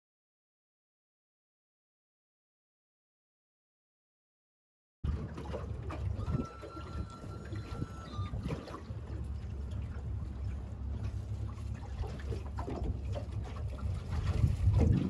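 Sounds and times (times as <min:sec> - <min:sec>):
boat engine low rumble: 0:05.0 - 0:15.0
water slapping against hull: 0:05.0 - 0:15.0.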